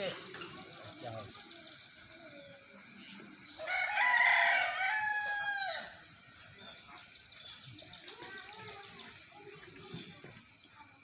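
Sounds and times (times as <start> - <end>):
rooster crowing: 3.6 - 6.0.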